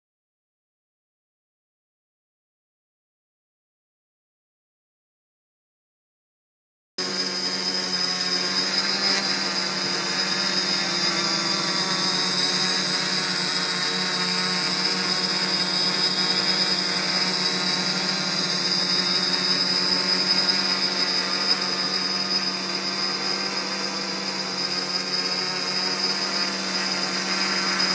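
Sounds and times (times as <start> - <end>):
drone motors and propellers whining: 7.0 - 27.9.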